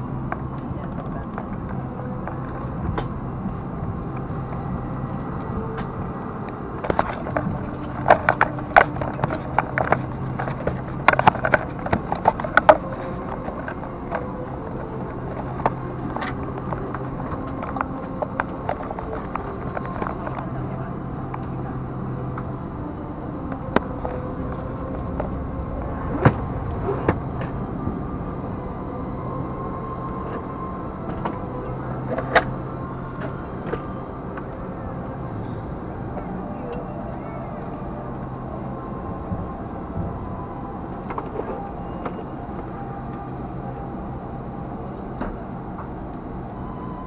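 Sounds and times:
airliner cabin hum: 0.0 - 47.0
clicks and knocks of bags and bins: 6.8 - 20.5.

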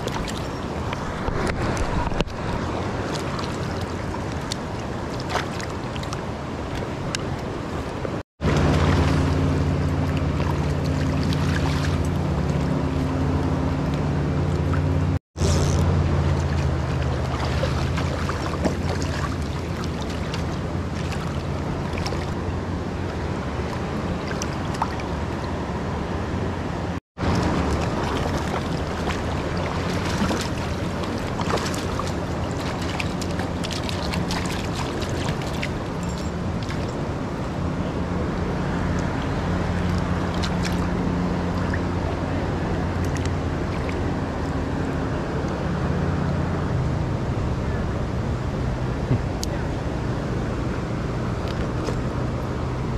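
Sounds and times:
water moving around wader: 0.0 - 52.9
wind on microphone: 0.0 - 52.9.

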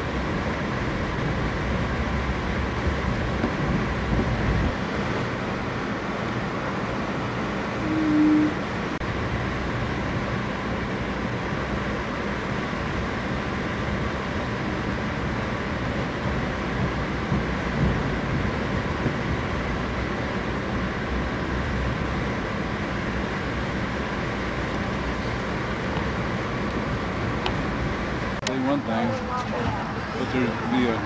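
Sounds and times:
train running rumble: 0.0 - 31.0
brief single tone: 7.8 - 8.6.

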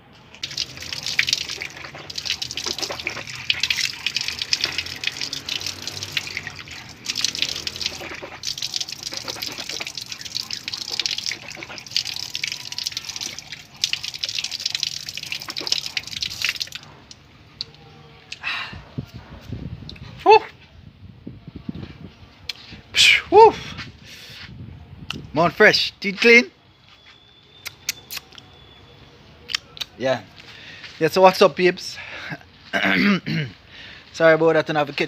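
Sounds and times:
water splashing and dripping: 0.1 - 17.2.

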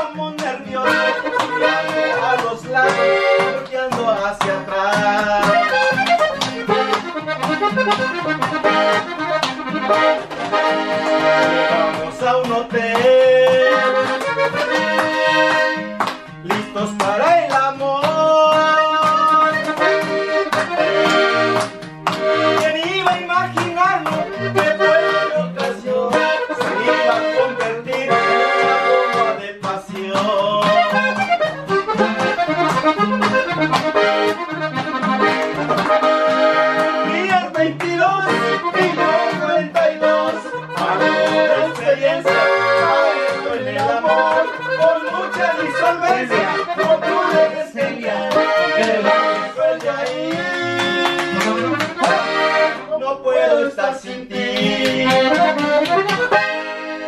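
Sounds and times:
man singing: 0.0 - 6.9, 11.0 - 14.8, 16.3 - 20.8, 22.3 - 31.5, 36.8 - 56.4
hands clapping: 0.0 - 52.9, 53.8 - 57.0
acoustic guitar: 0.0 - 57.0
button accordion: 0.0 - 57.0.

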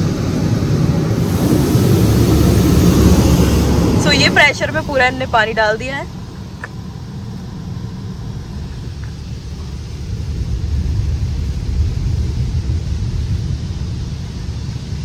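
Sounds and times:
water jets hitting car body: 0.0 - 5.2.

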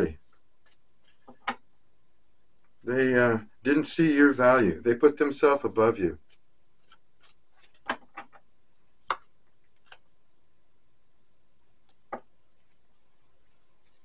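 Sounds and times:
plastic cards clicking and tapping: 6.2 - 8.4, 9.0 - 10.1.

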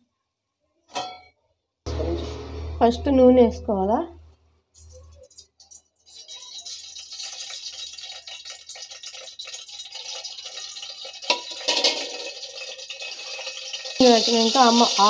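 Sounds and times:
oil crackling and hissing: 4.9 - 15.0.

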